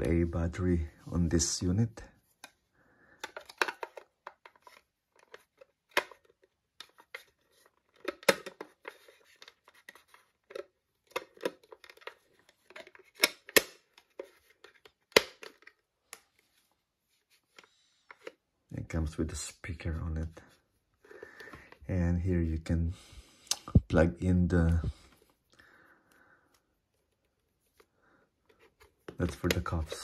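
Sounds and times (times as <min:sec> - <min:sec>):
plastic cover snapping: 0:03.2 - 0:07.2.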